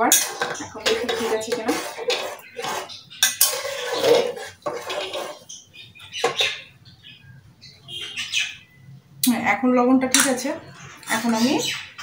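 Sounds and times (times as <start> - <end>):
metal spoon scraping a pot: 0.0 - 6.7, 10.1 - 11.7.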